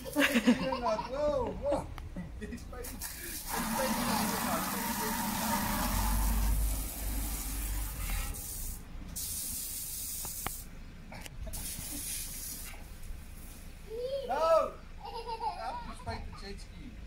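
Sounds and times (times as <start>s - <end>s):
garden hose spraying water: 2.8s - 10.7s, 11.5s - 13.8s.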